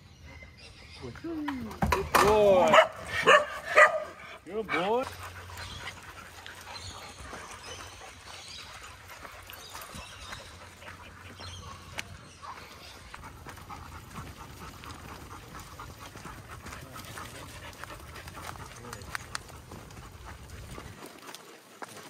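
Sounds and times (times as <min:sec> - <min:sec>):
dogs panting: 0:02.3 - 0:22.0
paws crunching on dry leaves: 0:04.5 - 0:22.0.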